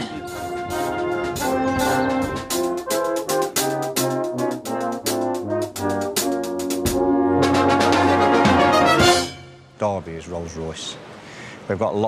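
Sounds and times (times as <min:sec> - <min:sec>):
brass band playing chords: 0:00.0 - 0:09.8
cymbal and drum hits: 0:06.2 - 0:07.3.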